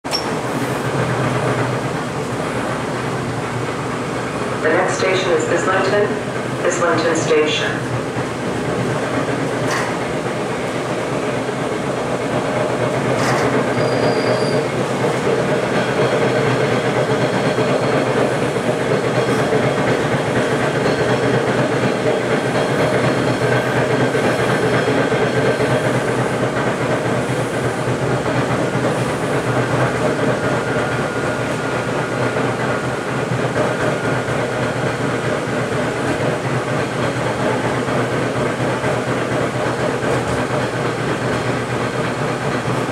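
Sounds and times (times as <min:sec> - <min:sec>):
train wheels rumbling on rails: 0:00.0 - 0:42.9.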